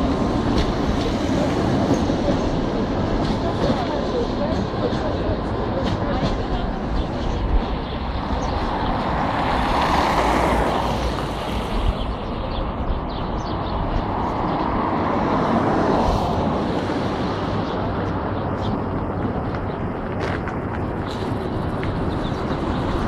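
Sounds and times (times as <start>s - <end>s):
bus engine and road noise: 0.0s - 23.0s.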